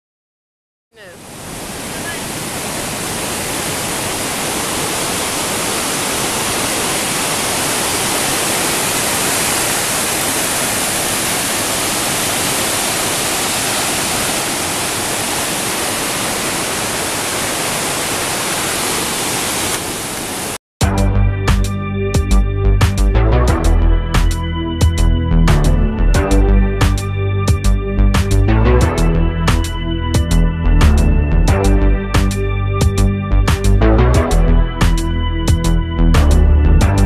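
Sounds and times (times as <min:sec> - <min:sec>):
waterfall rushing: 0:01.0 - 0:20.6.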